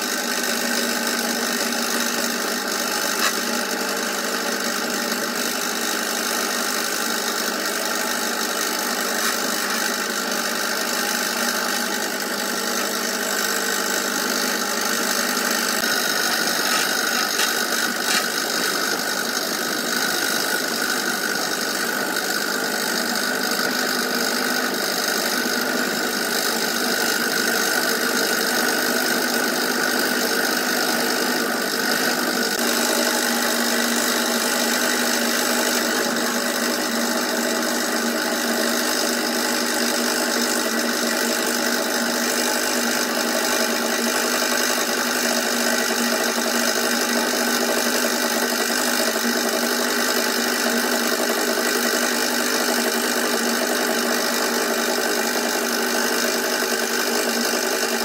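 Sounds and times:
scroll saw cutting wood: 0.0 - 58.0.

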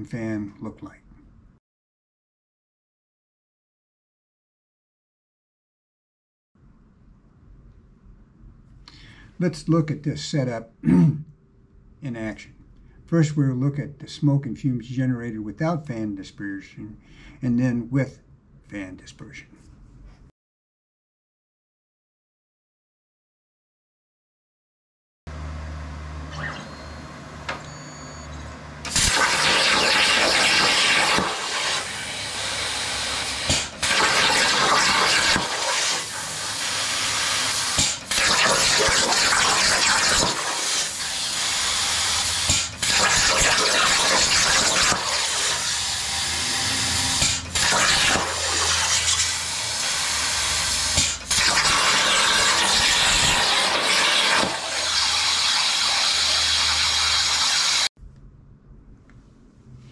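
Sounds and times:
plasma torch hissing: 28.8 - 57.9
low hum: 45.7 - 47.7, 58.0 - 59.9.

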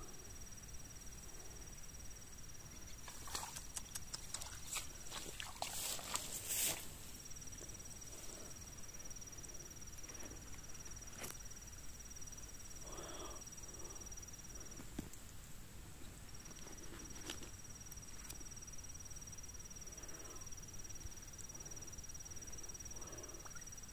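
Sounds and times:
insect trilling: 0.0 - 14.9, 16.4 - 23.9
faint clicks: 3.0 - 4.8.

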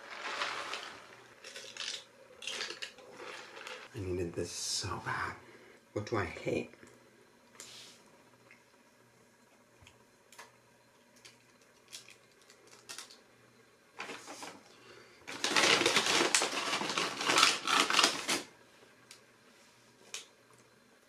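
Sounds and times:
paper packaging crinkling: 0.0 - 3.9, 15.3 - 18.5.

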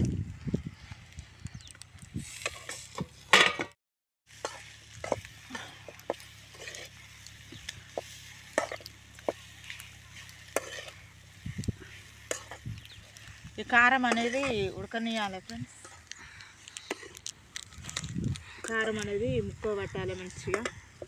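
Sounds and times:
metal spoon scraping a pan: 2.3 - 3.6, 4.3 - 16.1
meat sizzling: 4.3 - 21.0.

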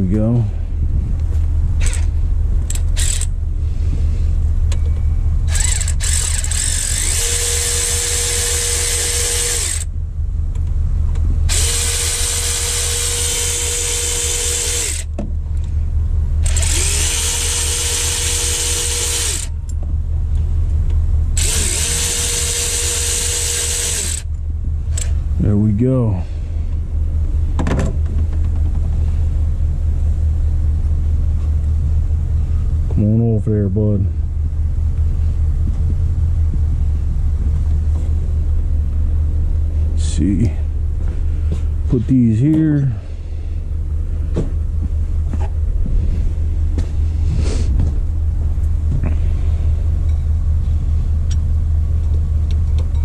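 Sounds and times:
steady low hum: 0.0 - 53.0
power tool motor whine: 2.7 - 3.3, 5.5 - 9.9, 11.5 - 15.1, 16.4 - 19.5, 21.4 - 24.3.

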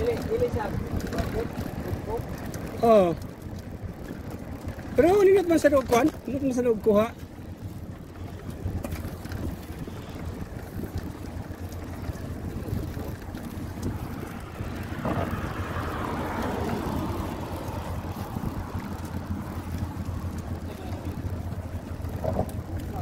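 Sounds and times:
motor vehicle passing: 0.0 - 23.0
wind rushing over microphone: 7.7 - 23.0.

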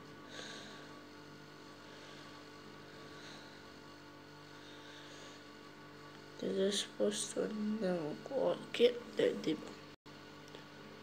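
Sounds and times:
faint electrical hum: 0.0 - 11.0.

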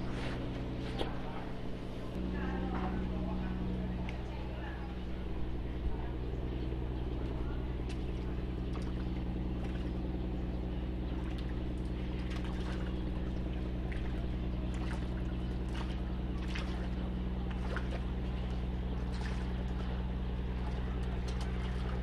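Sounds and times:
engine humming: 0.0 - 22.0
fish splashing at water surface: 11.1 - 22.0.

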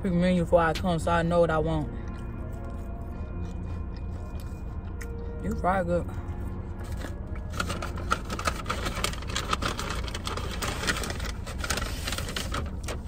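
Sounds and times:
car engine humming: 0.0 - 13.0
paper bag rustling and crinkling: 6.8 - 13.0.

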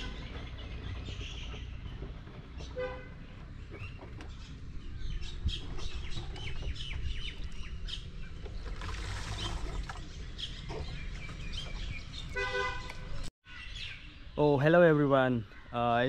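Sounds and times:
birds chirping and calling: 0.0 - 16.0
horn tooting: 2.6 - 3.4, 12.3 - 13.3.

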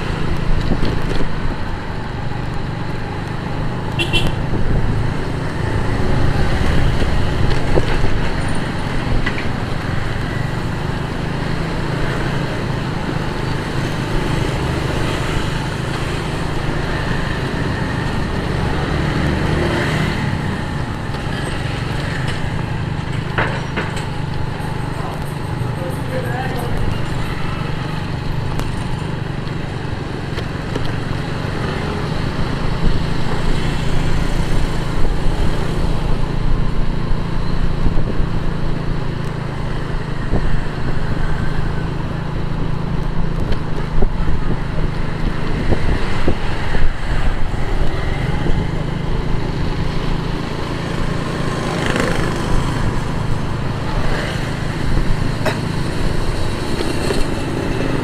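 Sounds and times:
other vehicles in traffic: 0.0 - 58.0
wind and road noise: 0.0 - 58.0
motorcycle engine running: 20.2 - 58.0.

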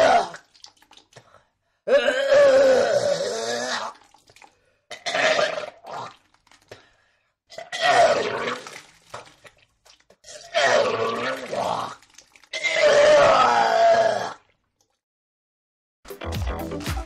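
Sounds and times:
person retching: 1.9 - 4.2, 4.9 - 6.3, 7.5 - 9.0, 10.2 - 14.5.

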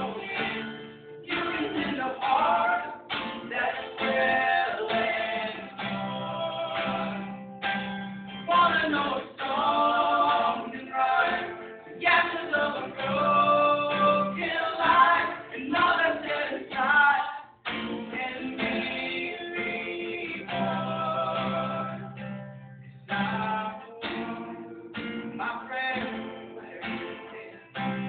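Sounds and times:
people singing in harmony: 0.0 - 7.4, 8.5 - 22.2
strummed acoustic guitar: 0.0 - 28.0.

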